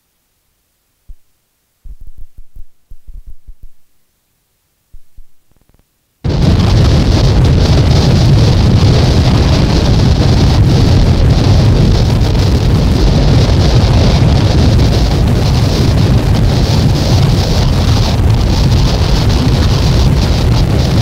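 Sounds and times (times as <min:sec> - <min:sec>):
dense noise music: 0:05.0 - 0:21.0.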